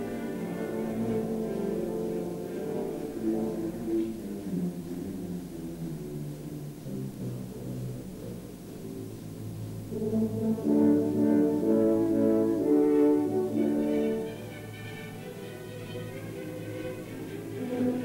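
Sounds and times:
orchestral brass chords: 0:00.0 - 0:05.1, 0:09.7 - 0:18.0.

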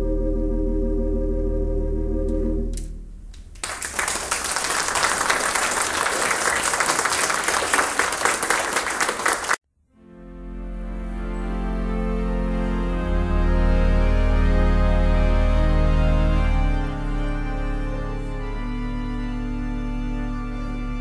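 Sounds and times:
pipe organ chord: 0:00.0 - 0:02.9, 0:09.4 - 0:21.0
slow sustained music: 0:00.0 - 0:03.2, 0:09.9 - 0:21.0
audience applauding: 0:03.6 - 0:09.6.

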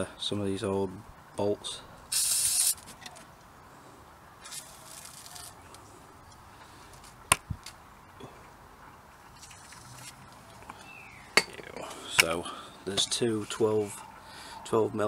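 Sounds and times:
aerosol can spraying: 0:02.1 - 0:02.8.

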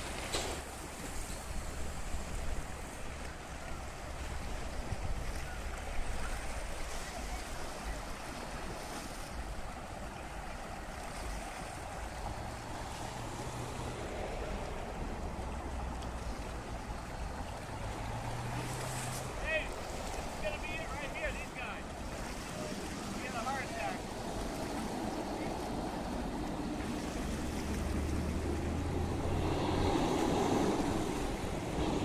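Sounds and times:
small sea waves: 0:00.0 - 0:32.0
wind buffeting microphone: 0:21.9 - 0:32.0.

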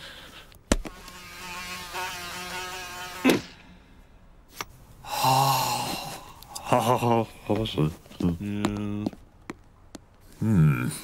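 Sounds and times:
cartoon fly buzzing: 0:00.8 - 0:03.6.

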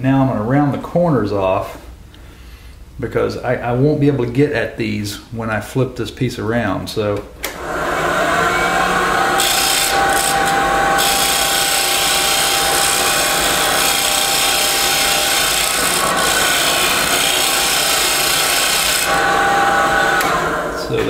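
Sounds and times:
wood lathe running: 0:07.6 - 0:21.0
turning tool scraping wood: 0:09.2 - 0:20.4.

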